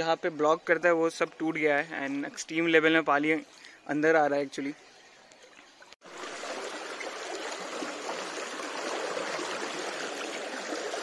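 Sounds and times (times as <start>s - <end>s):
floodwater rushing and churning: 5.4s - 11.0s.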